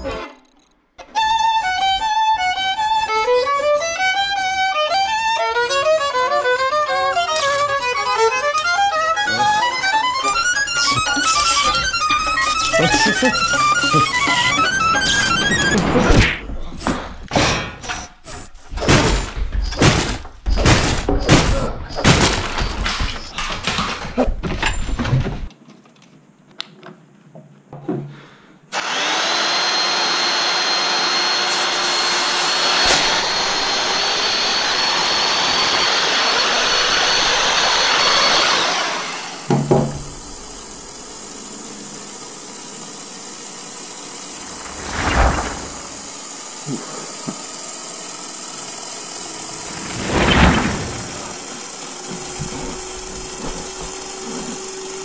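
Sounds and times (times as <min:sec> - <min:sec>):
electric drill whining: 0:00.4 - 0:16.0, 0:28.7 - 0:55.0.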